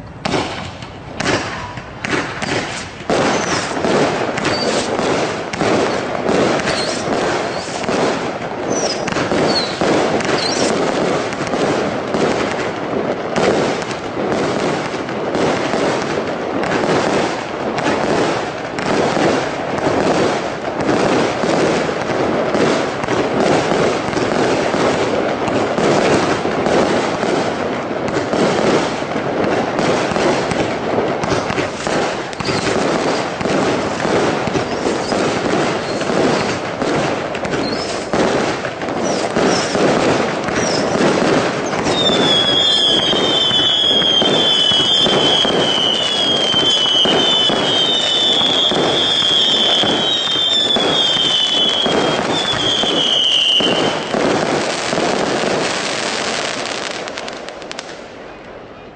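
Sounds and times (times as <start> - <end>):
fireworks firing rapid pops and bangs: 0.0 - 58.9.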